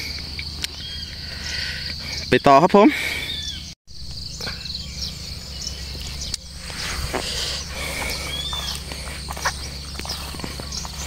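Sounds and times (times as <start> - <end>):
bird calling: 0.0 - 11.0
insects chirring: 0.0 - 11.0
footsteps through dry stubble: 5.5 - 11.0.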